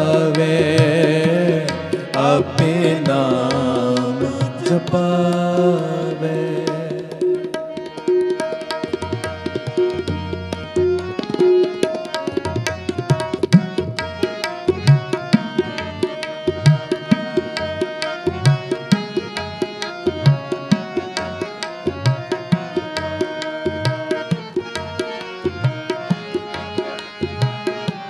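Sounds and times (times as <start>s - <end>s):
harmonium notes: 0.0s - 28.0s
tabla strokes: 6.6s - 28.0s.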